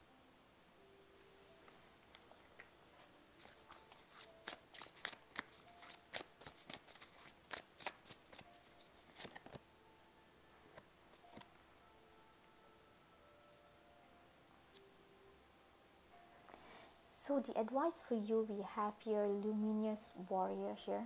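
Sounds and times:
cards being shuffled: 3.4s - 9.6s, 11.1s - 11.6s.

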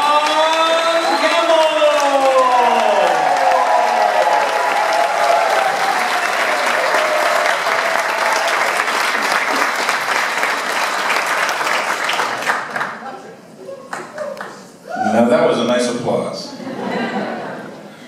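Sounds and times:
people cheering: 0.0s - 12.6s, 13.6s - 15.3s
audience applauding: 0.0s - 13.1s.

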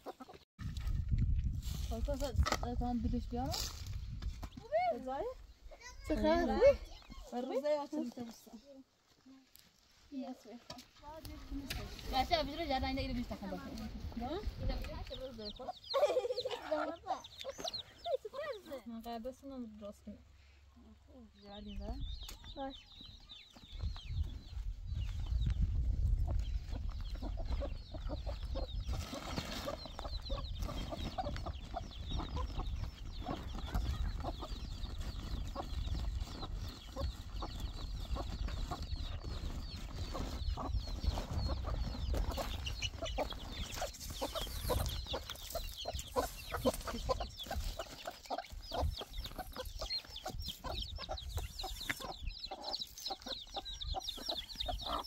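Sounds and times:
hens clucking: 0.0s - 0.4s, 11.8s - 18.9s, 26.1s - 55.0s.

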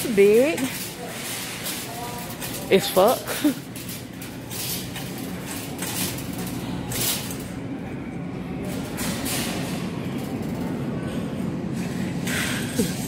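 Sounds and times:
cart rattles: 0.0s - 7.6s
shopping cart rolling: 0.0s - 13.0s
supermarket background noise: 0.0s - 13.0s.

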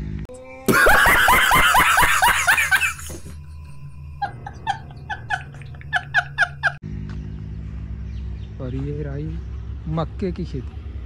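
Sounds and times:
man laughing hard: 0.7s - 3.4s, 4.2s - 6.8s.

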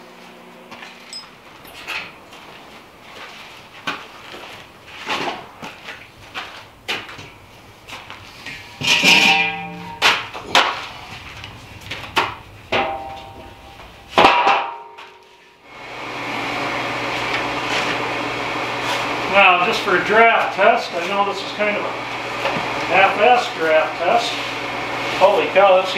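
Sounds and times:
blower fan humming: 0.0s - 25.9s
guitar music: 9.1s - 10.2s.

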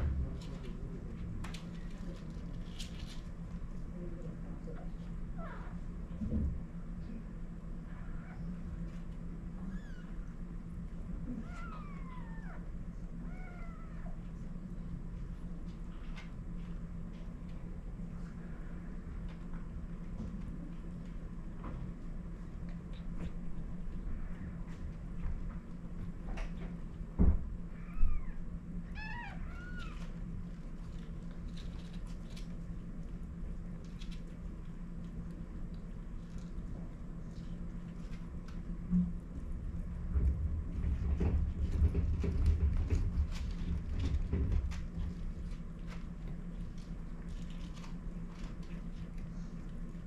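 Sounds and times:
steady low hum: 0.0s - 50.0s
cat mewing: 11.4s - 14.2s, 27.7s - 30.1s.

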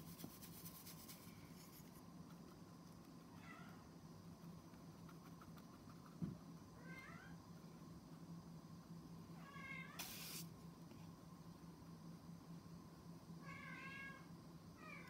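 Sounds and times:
brief hiss of noise: 9.9s - 10.5s.

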